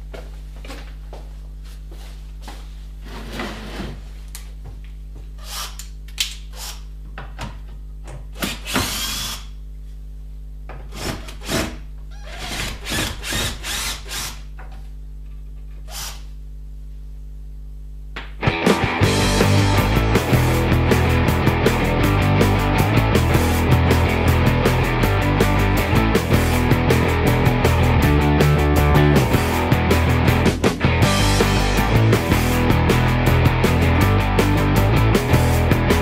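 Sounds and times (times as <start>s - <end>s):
low electrical hum: 0.0s - 18.4s
cordless drill driving screws: 5.4s - 5.9s, 8.4s - 9.5s, 12.2s - 14.4s, 15.9s - 16.2s.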